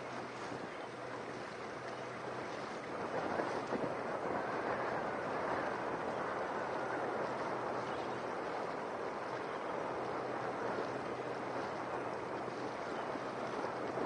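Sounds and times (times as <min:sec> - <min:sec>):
choppy water: 0:00.0 - 0:14.0
faint boat engine hum: 0:00.0 - 0:14.0.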